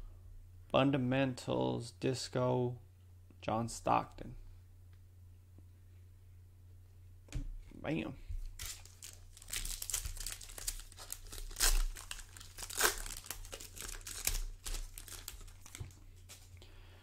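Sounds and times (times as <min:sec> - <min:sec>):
foil wrapper crinkling: 0:08.4 - 0:16.5.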